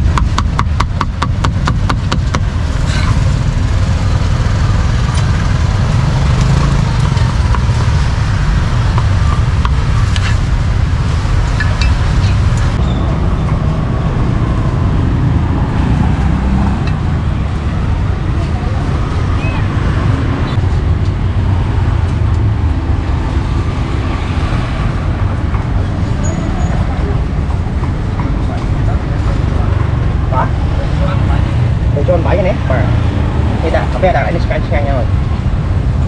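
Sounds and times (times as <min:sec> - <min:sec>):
street traffic rumble: 0:00.0 - 0:36.0
cleaver chopping on a board: 0:00.1 - 0:02.5.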